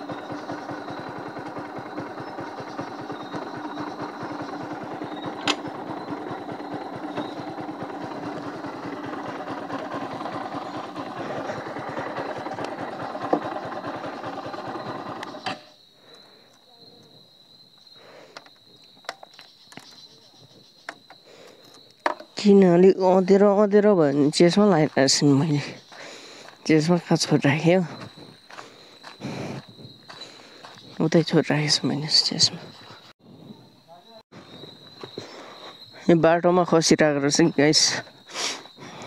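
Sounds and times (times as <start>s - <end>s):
motorcycle engine idling: 0.0s - 15.9s.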